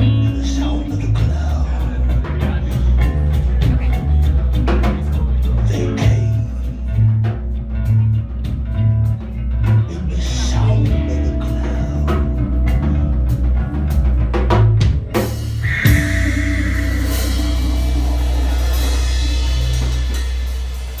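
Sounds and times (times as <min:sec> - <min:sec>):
live band music: 0:00.0 - 0:21.0
drum kit and bass hits: 0:11.0 - 0:21.0
cymbal crash: 0:15.6 - 0:21.0
held low note ringing: 0:15.6 - 0:21.0.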